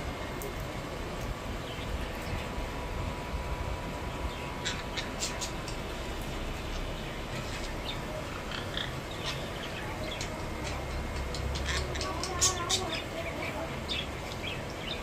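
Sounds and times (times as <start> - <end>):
low background hum: 0.0 - 15.0
parakeets chirping: 4.2 - 15.0.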